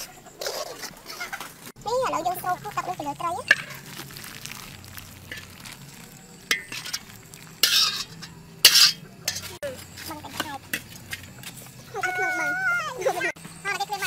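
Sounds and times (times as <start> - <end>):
metal ladle scraping metal tray: 6.4 - 9.6.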